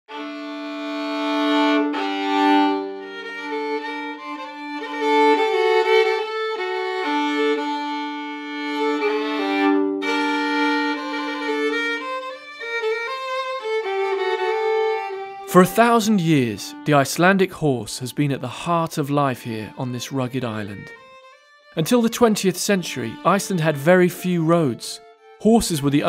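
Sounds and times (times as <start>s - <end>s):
violin playing slow notes: 0.1s - 26.0s.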